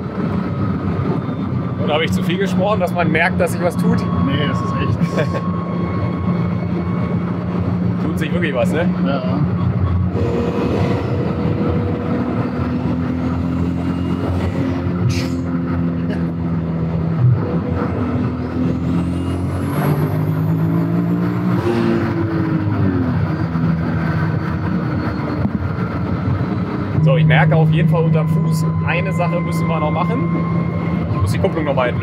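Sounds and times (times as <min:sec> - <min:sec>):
turbo whistle: 0:27.0 - 0:31.8.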